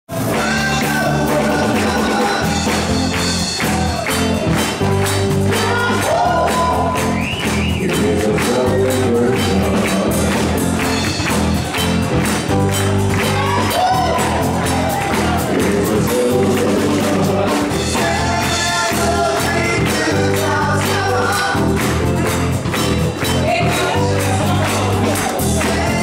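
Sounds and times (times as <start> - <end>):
crowd singing: 0.1 - 3.2, 5.3 - 10.8, 13.2 - 26.0
live band with piano and bass: 0.1 - 26.0
hands clapping on the beat: 0.2 - 26.0.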